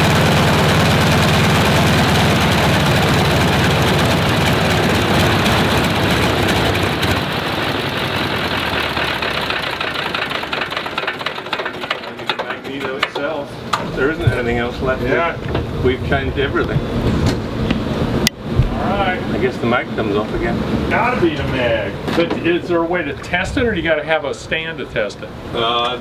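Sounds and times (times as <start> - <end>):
radial aircraft engine running: 0.0 - 12.2
engine winding down: 0.0 - 12.7.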